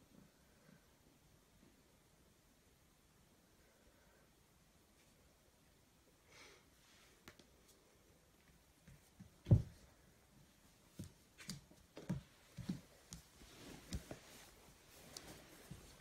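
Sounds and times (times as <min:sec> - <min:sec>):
kitten paws tapping on floor: 0:10.9 - 0:16.0.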